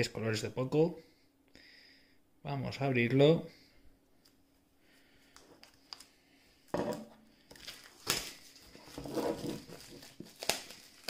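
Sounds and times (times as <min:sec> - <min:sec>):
plastic film crinkling: 0:07.4 - 0:11.0
knife cutting plastic wrap: 0:07.5 - 0:11.0.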